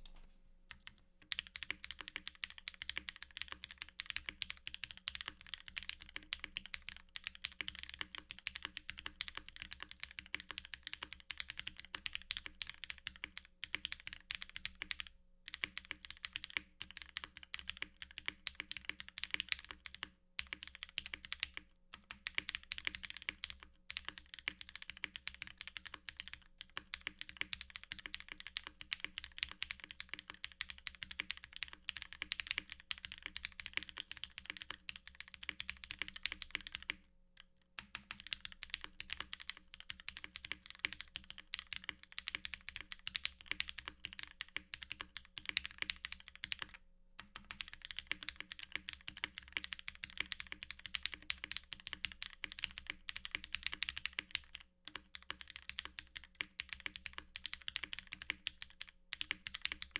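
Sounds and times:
faint electrical hum: 0:00.0 - 0:07.9
fast typing on mechanical keyboard: 0:00.7 - 0:37.0, 0:37.8 - 0:59.9.

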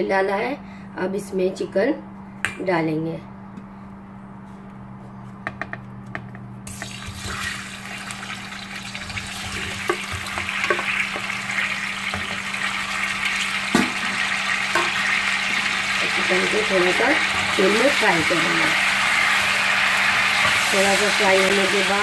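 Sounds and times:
food sizzling in hot oil: 0:06.7 - 0:22.0
wooden spatula knocking pan: 0:09.8 - 0:11.3.

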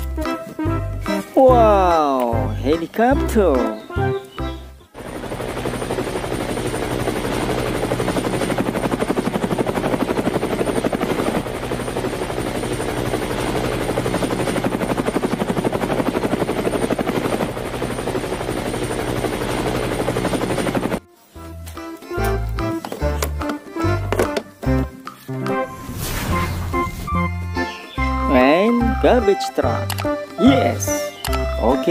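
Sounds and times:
helicopter engine hum: 0:03.6 - 0:21.0
helicopter rotor beating: 0:04.9 - 0:21.0.

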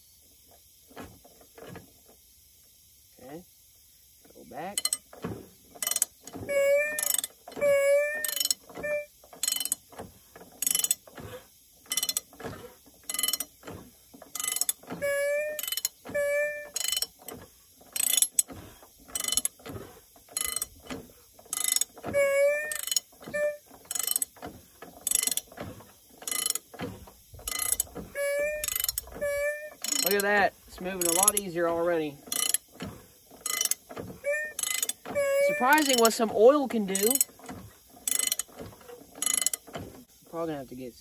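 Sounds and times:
short squeak: 0:05.2 - 0:09.8, 0:10.6 - 0:17.4, 0:18.0 - 0:39.9
ratchet wrench clicking: 0:05.8 - 0:06.3, 0:06.9 - 0:09.8, 0:10.6 - 0:11.0, 0:11.9 - 0:12.3, 0:13.1 - 0:13.5, 0:14.4 - 0:14.8, 0:15.6 - 0:16.0, 0:16.7 - 0:19.6, 0:20.3 - 0:20.8, 0:21.5 - 0:23.3, 0:23.9 - 0:24.3, 0:25.0 - 0:25.5, 0:26.2 - 0:26.6, 0:27.4 - 0:31.6, 0:32.2 - 0:36.3, 0:36.9 - 0:38.6, 0:39.2 - 0:39.7.

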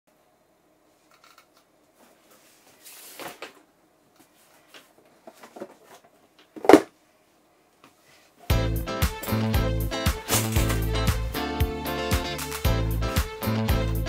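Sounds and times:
music with steady beat: 0:08.5 - 0:14.0
bag rustling: 0:10.2 - 0:11.0.

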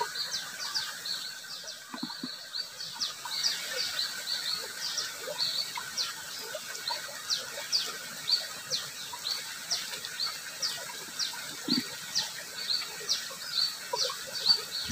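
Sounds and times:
running water: 0:00.0 - 0:14.9
small birds chirping: 0:00.0 - 0:14.9.

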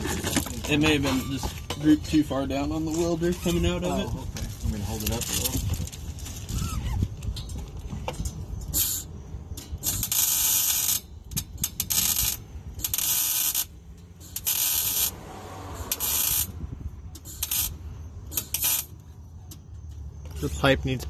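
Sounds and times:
welding arc crackling: 0:09.9 - 0:15.2, 0:15.8 - 0:16.6, 0:17.3 - 0:18.9.

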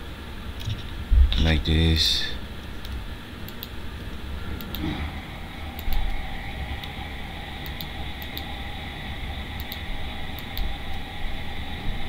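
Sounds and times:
room and computer hum: 0:00.0 - 0:12.0
computer mouse clicks: 0:02.6 - 0:04.9, 0:05.7 - 0:06.2, 0:07.6 - 0:08.5, 0:09.6 - 0:11.0.

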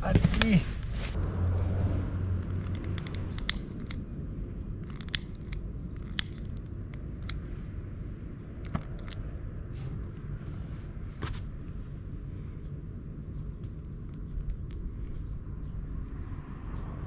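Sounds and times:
lighter clicking: 0:02.7 - 0:04.0.

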